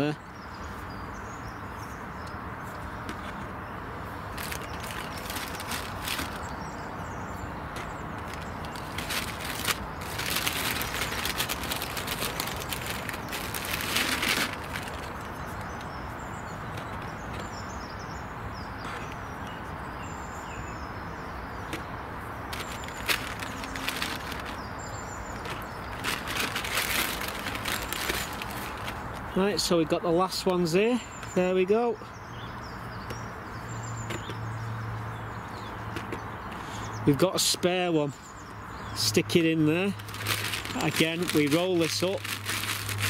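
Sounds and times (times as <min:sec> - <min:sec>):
hand rustling in bag: 0:04.3 - 0:06.5, 0:08.2 - 0:15.3, 0:22.5 - 0:24.7, 0:25.4 - 0:29.0, 0:40.0 - 0:43.0.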